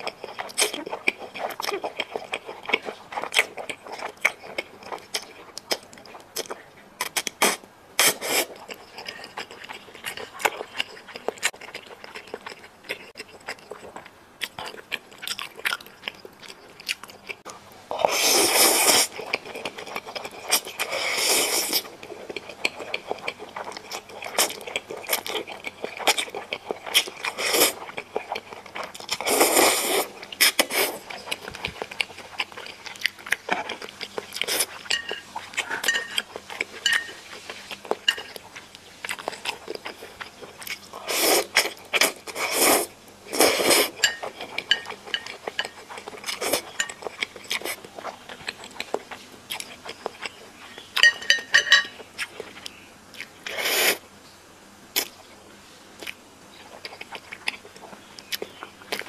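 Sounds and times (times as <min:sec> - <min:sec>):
wet chewing and smacking: 0:00.0 - 0:18.2, 0:18.8 - 0:53.5, 0:56.0 - 0:59.0.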